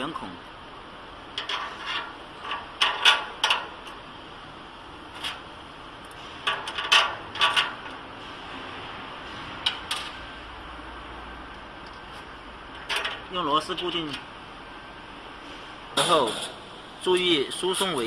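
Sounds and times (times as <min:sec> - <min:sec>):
metal parts clicking and knocking: 0:01.4 - 0:04.0, 0:06.4 - 0:08.0, 0:12.7 - 0:13.3.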